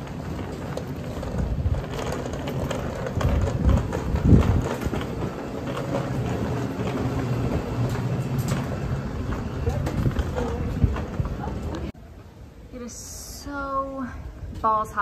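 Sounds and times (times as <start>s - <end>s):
moving vehicle rumbling and rattling: 0.0s - 12.0s.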